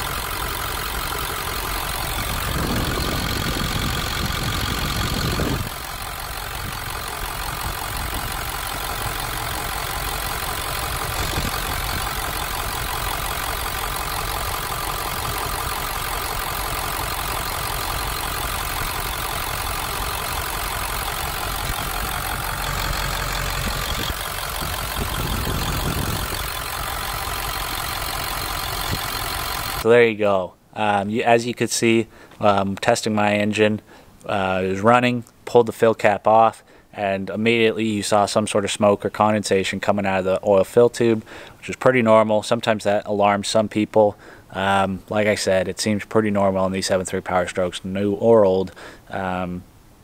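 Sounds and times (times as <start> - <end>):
diesel engine idling: 0.0 - 29.9.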